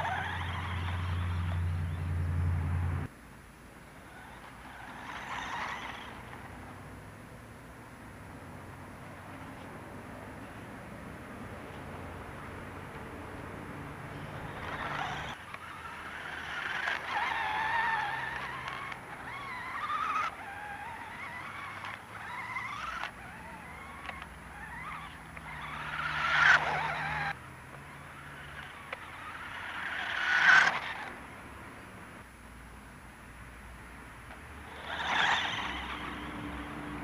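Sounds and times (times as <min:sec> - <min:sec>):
toy buggy motor whining: 0:00.0 - 0:02.0, 0:04.0 - 0:06.5, 0:14.1 - 0:31.2, 0:34.6 - 0:37.0.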